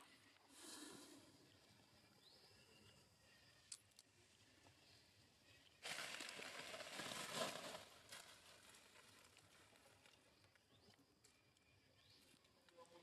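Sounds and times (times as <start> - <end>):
rustling of dry leaves: 5.8 - 10.4.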